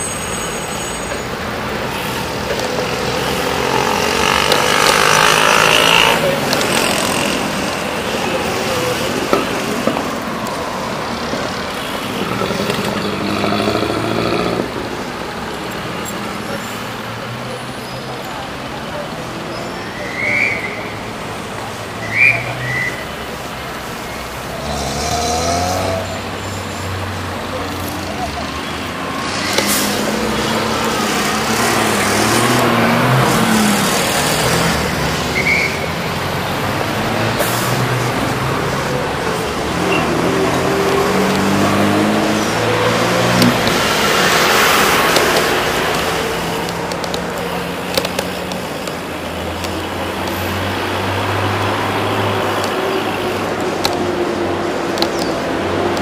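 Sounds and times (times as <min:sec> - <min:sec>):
traffic passing: 0:00.0 - 0:56.0
vehicle engine hum: 0:01.5 - 0:17.0.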